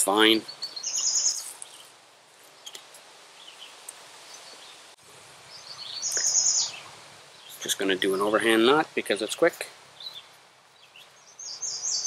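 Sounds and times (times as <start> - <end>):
faint bird chirps: 0.4 - 1.9, 5.5 - 8.3, 10.0 - 12.0.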